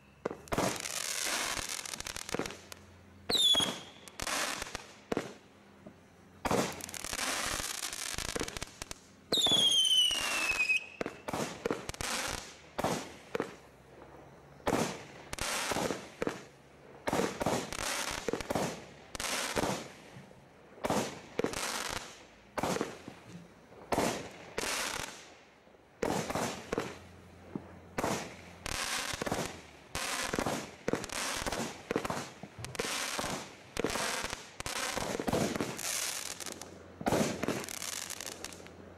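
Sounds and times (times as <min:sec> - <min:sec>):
firework bangs: 0:00.0 - 0:05.4, 0:06.4 - 0:13.6, 0:14.6 - 0:20.1, 0:20.8 - 0:23.2, 0:23.8 - 0:25.3, 0:26.0 - 0:38.7
firework falling whistle: 0:03.3 - 0:04.7, 0:09.3 - 0:11.6.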